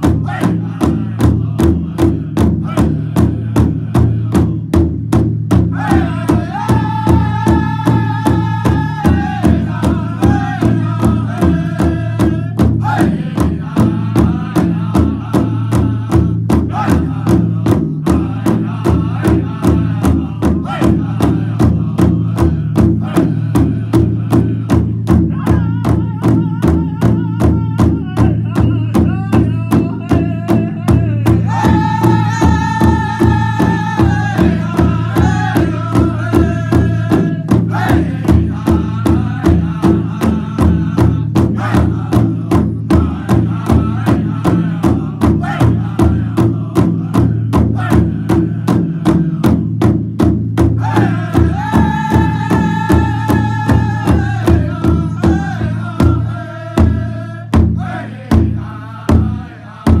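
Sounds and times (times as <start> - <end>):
men singing in high voices: 0.0 - 5.0, 5.6 - 50.0, 50.6 - 60.0
large drum beating: 0.0 - 60.0.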